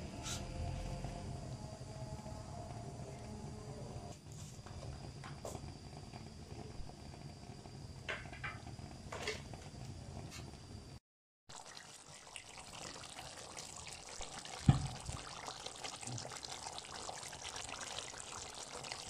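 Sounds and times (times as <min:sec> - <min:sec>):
steady low hum: 0:00.0 - 0:08.1
gravy simmering with bubbling pops: 0:04.2 - 0:19.0.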